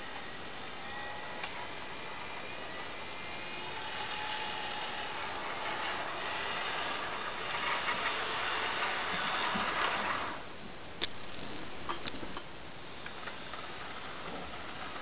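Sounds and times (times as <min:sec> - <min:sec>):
model train motor whirring: 0:00.0 - 0:10.4, 0:11.0 - 0:12.2, 0:13.2 - 0:15.0
wheels rolling on track: 0:00.0 - 0:15.0
sharp clicks: 0:11.0 - 0:12.3.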